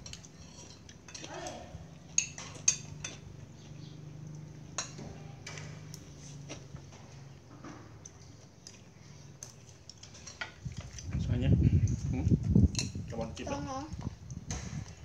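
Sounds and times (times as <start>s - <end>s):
cutlery clinking on a ceramic plate: 0.0s - 1.3s, 2.1s - 3.4s, 4.7s - 5.9s.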